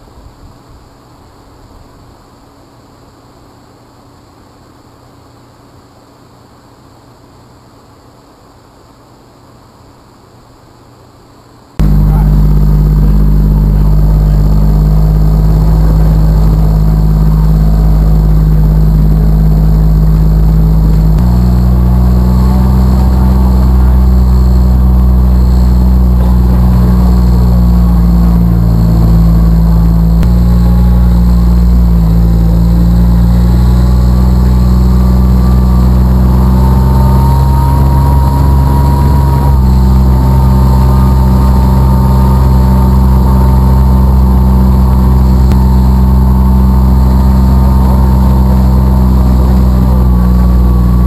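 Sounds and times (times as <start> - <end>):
utility vehicle engine running: 11.8 - 51.0.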